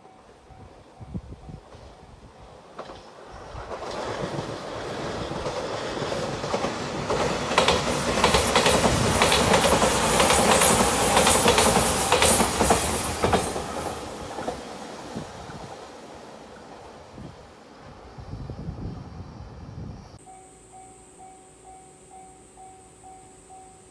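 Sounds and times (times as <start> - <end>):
electric train passing: 0.0 - 23.9
train wheels clacking over rail joints: 2.7 - 14.7.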